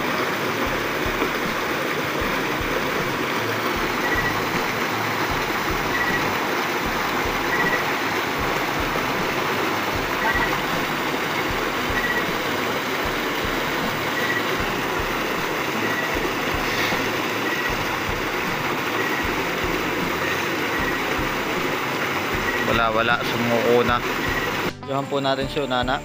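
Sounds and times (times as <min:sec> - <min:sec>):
water gushing from pipe: 0:00.0 - 0:24.8.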